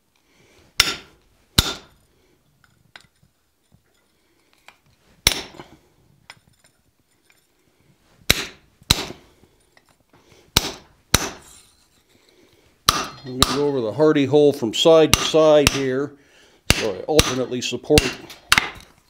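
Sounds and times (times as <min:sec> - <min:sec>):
hammer striking punch on steel: 0:00.8 - 0:01.9, 0:05.3 - 0:05.6, 0:08.3 - 0:09.2, 0:10.6 - 0:11.5, 0:12.9 - 0:13.8, 0:15.1 - 0:15.9, 0:16.7 - 0:18.8.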